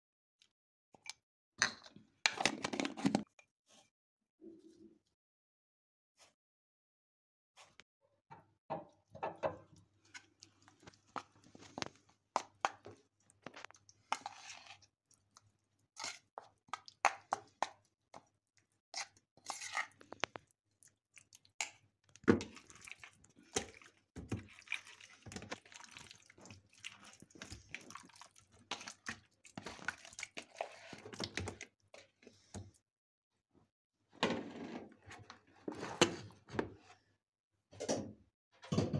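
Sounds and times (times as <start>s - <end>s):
spoon stirring wet paste: 9.2s - 32.8s.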